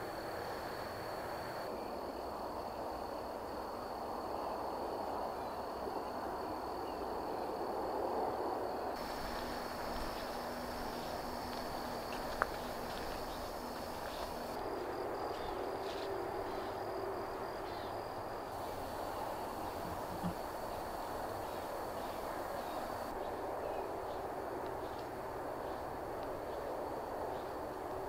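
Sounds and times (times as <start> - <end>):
steady outdoor noise: 0.0 - 28.0
high insect trill: 9.0 - 23.2.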